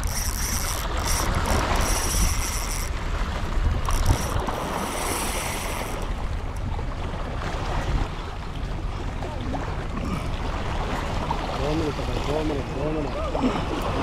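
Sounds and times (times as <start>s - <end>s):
fishing reel whirring: 0.0s - 6.6s
waves lapping: 0.0s - 14.0s
wind buffeting microphone: 0.0s - 14.0s.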